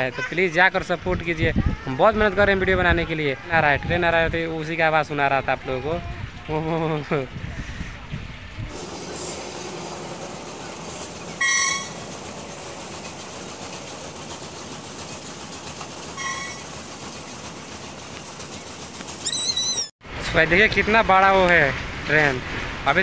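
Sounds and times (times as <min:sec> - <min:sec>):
freight train wheels on rails: 0:08.7 - 0:19.8
short high-pitched horn beep: 0:11.4 - 0:12.0, 0:16.2 - 0:16.7.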